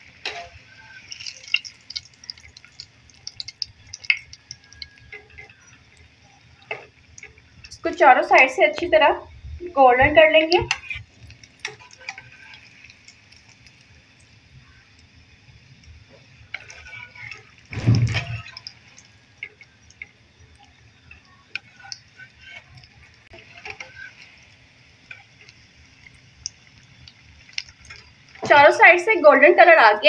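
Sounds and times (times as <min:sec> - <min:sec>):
food sizzling in hot oil: 0:00.0 - 0:30.0.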